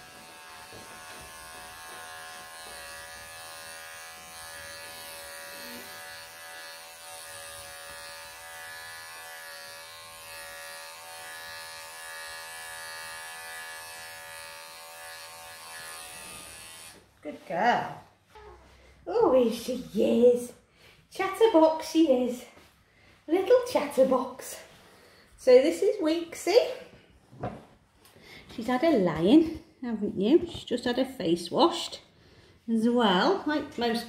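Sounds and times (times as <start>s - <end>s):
electric pet clippers buzzing: 0.0s - 17.1s.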